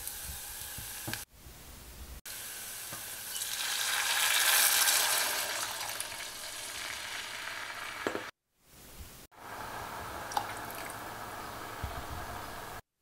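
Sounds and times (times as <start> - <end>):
water sizzling in hot oil: 0.0 - 1.3, 2.3 - 8.3.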